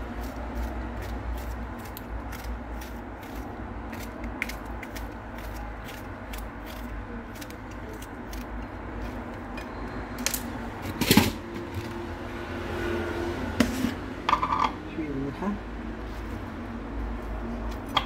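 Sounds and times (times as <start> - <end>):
knife cutting cucumber: 0.0 - 9.6.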